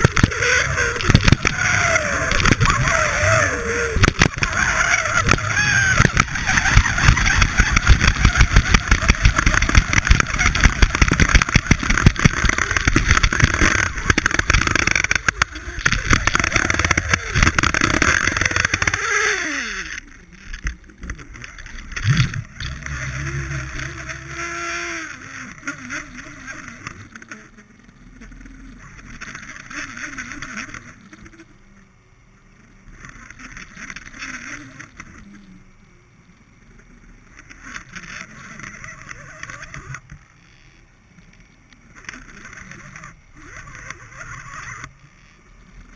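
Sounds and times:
water rushing against camera: 0.0 - 19.0.

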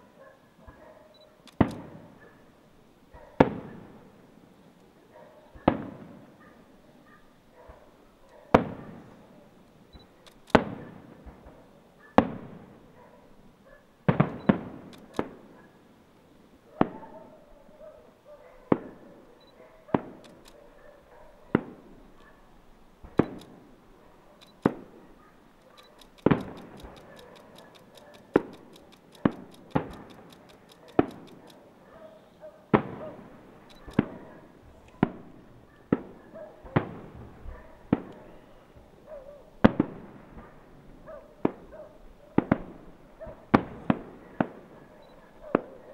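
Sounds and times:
firework shells bursting: 1.5 - 2.0, 10.3 - 11.5, 14.1 - 15.4, 20.0 - 20.5, 23.1 - 23.7, 24.4 - 24.9, 25.6 - 31.7.

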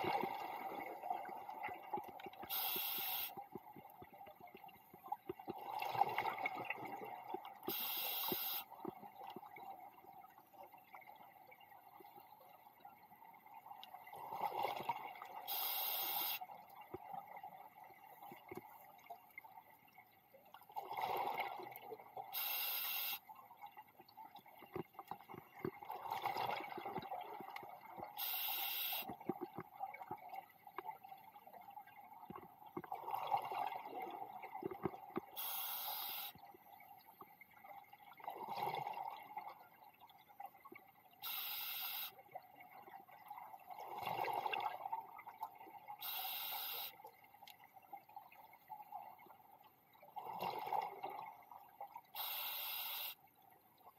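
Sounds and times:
regulator hiss on inhale: 2.5 - 3.4, 7.7 - 8.7, 15.5 - 16.4, 22.4 - 23.2, 28.2 - 29.1, 35.4 - 36.4, 41.2 - 42.2, 46.0 - 47.0, 52.2 - 53.2.

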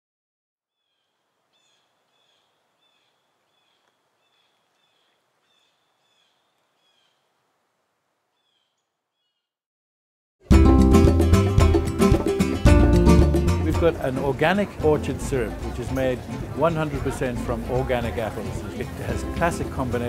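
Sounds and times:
faint bird chirps: 0.7 - 7.5, 8.3 - 9.6
soft hiss: 0.9 - 8.8
loud music: 10.4 - 17.9.

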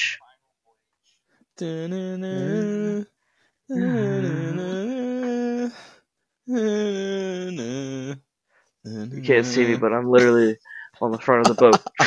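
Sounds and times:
man singing wordless tune: 1.6 - 5.9, 6.5 - 10.5.

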